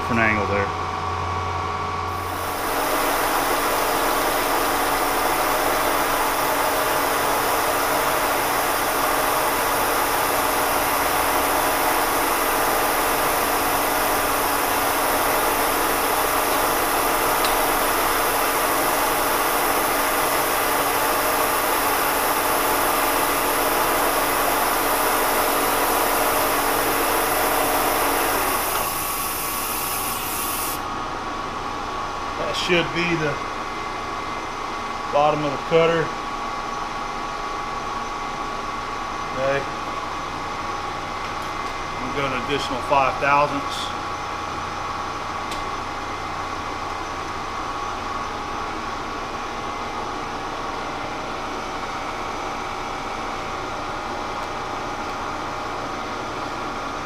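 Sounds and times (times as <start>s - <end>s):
machine hum: 0.0s - 57.0s
coolant nozzle hissing: 2.1s - 30.8s
milling machine cutting: 2.1s - 30.8s.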